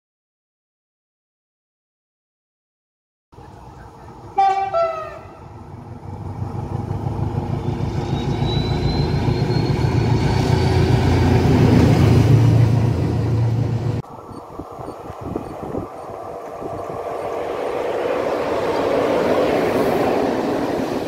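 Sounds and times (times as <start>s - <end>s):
diesel locomotive engine passing: 3.4s - 21.0s
two-note locomotive horn: 4.3s - 5.5s.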